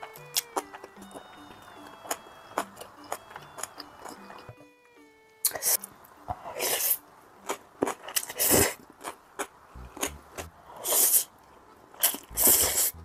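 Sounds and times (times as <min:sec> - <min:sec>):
chewing and mouth clicks: 0:00.0 - 0:01.2, 0:06.4 - 0:11.2, 0:12.0 - 0:13.0
person slurping noodles: 0:08.2 - 0:08.8, 0:09.8 - 0:11.3, 0:12.0 - 0:13.0.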